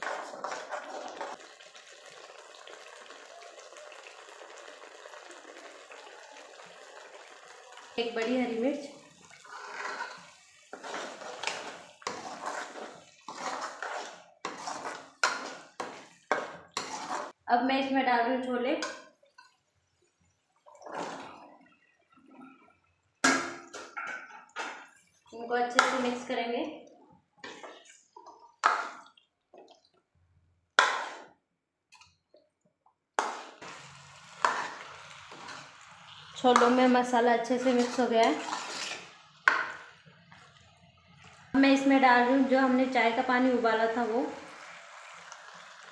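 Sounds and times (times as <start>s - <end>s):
steel spoon scraping a metal pan: 9.3s - 17.4s, 30.8s - 31.3s, 33.2s - 39.7s.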